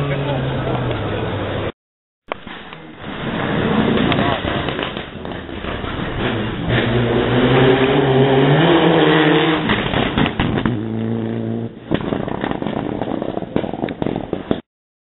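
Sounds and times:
rally car accelerating past: 6.0 - 11.7.

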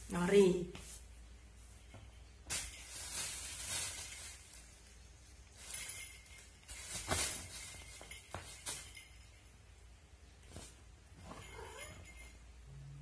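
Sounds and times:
plastic bag crinkling and rustling: 2.4 - 9.2.

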